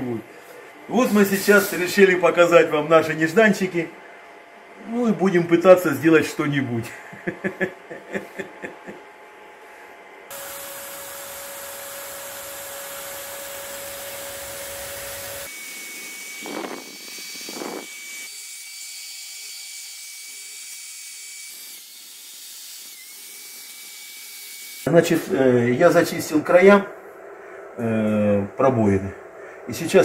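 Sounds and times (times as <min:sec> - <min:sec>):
die grinder whining: 0:10.3 - 0:24.9.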